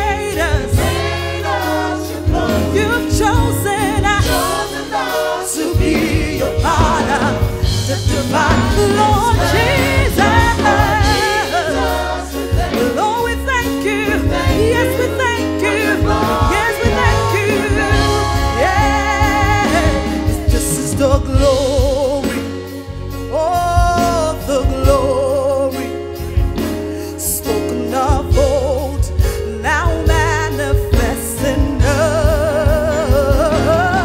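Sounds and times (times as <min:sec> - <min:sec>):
bass line: 0:00.0 - 0:34.0
gospel choir singing: 0:00.0 - 0:34.0
drum beat: 0:00.4 - 0:22.2.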